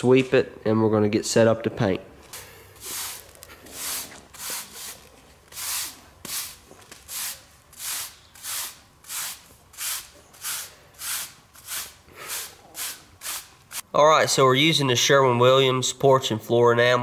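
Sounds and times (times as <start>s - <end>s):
broom sweeping concrete: 2.7s - 13.9s.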